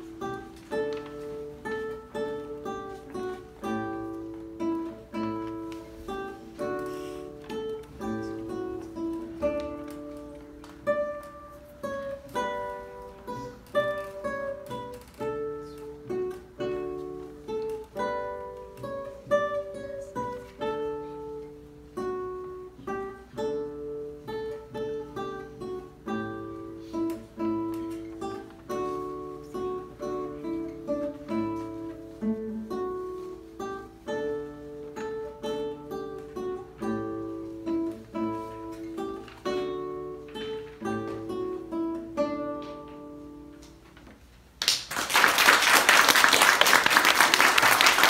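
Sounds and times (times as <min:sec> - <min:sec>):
classical guitar solo: 0:00.0 - 0:44.6
audience applause: 0:44.6 - 0:48.0.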